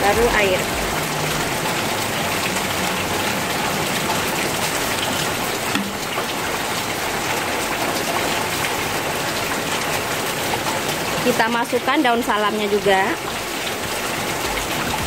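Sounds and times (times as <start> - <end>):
water pouring into a pan: 0.0 - 11.8.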